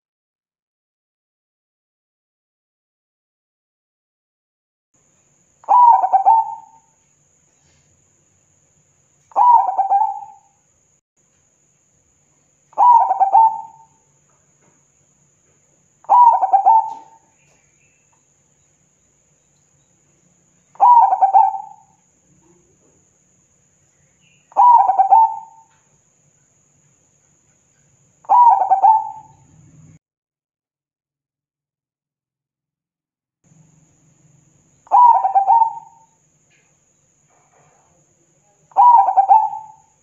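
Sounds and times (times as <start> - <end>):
dove cooing: 5.6 - 6.8, 9.3 - 10.5, 12.8 - 13.9, 16.0 - 17.7, 20.7 - 22.8, 24.5 - 25.8, 28.3 - 30.0, 34.9 - 36.1, 38.8 - 39.9.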